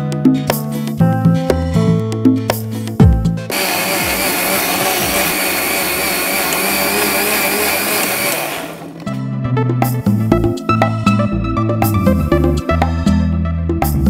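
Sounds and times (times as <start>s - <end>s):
background music: 0.0s - 14.0s
mixer grinder whining: 3.5s - 9.1s.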